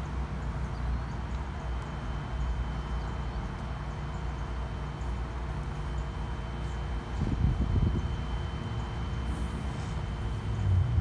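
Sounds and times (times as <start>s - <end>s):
outdoor background hiss: 0.0s - 11.0s
wind rumbling on microphone: 7.1s - 8.3s.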